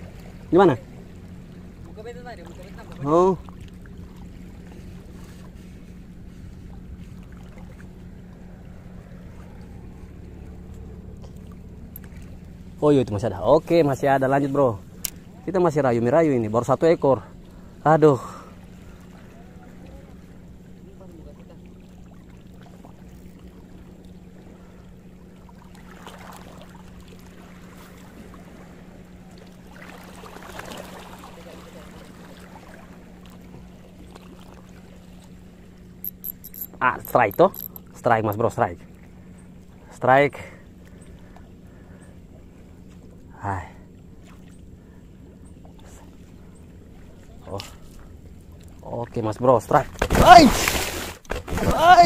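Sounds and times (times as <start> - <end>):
low engine hum: 0.0 - 52.0
small waves lapping on rocks: 25.3 - 35.8, 45.8 - 52.0.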